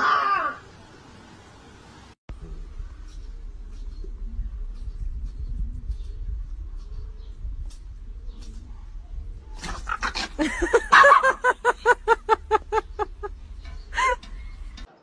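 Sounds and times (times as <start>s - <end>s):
small dog yapping: 0.0s - 0.6s.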